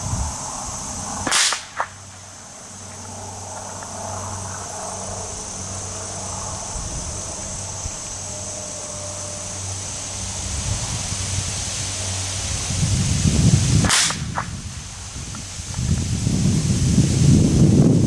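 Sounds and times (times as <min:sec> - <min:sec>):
insect buzzing: 0:00.0 - 0:18.0
wind rumble: 0:00.0 - 0:18.0
rifle shot: 0:01.2 - 0:02.0, 0:13.8 - 0:14.5
sharp crack: 0:01.2 - 0:03.0, 0:13.8 - 0:15.5.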